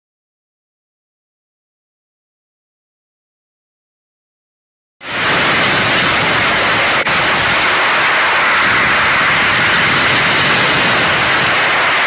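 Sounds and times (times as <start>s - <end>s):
static hiss: 5.0s - 12.0s.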